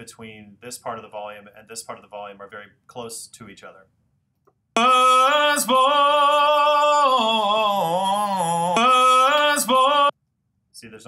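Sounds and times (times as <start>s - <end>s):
person singing with vibrato: 4.8s - 10.1s.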